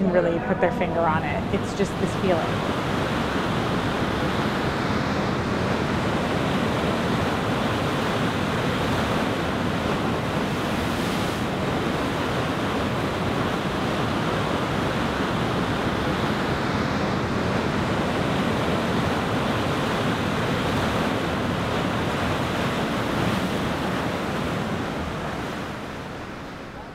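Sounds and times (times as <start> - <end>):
surf: 0.0 - 26.9
wind: 0.0 - 26.9.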